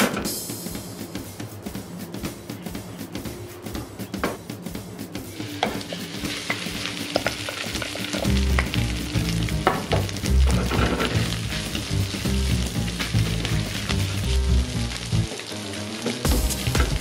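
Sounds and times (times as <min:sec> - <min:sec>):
rice sizzling in hot oil: 0:05.3 - 0:17.0.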